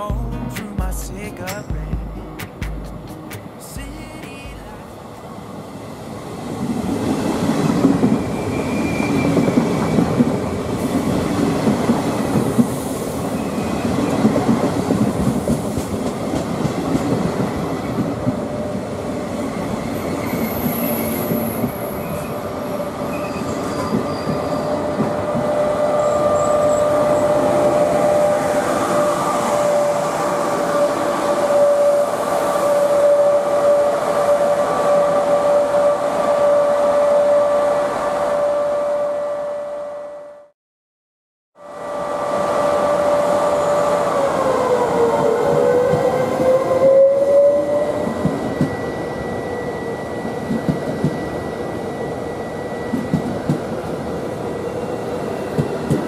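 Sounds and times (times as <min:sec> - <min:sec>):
train wheels rumbling on rails: 0:00.0 - 0:36.0, 0:43.0 - 0:56.0
high squeal: 0:08.2 - 0:10.1, 0:19.9 - 0:40.2, 0:41.7 - 0:53.1.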